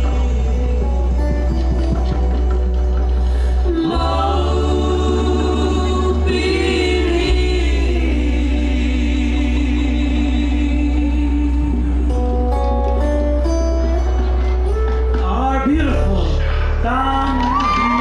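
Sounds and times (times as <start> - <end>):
group of voices singing: 0.0 - 12.8
deep bass: 0.0 - 18.0.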